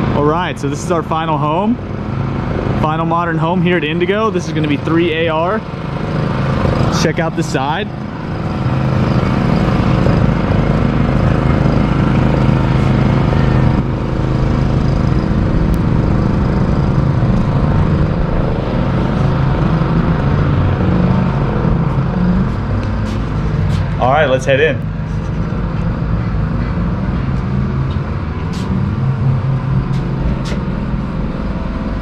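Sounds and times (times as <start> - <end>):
construction equipment engine running: 0.0 - 32.0.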